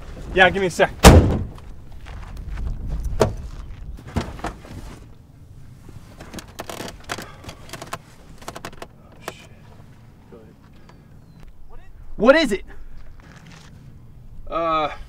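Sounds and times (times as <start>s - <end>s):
rummaging in car interior: 3.2s - 10.6s.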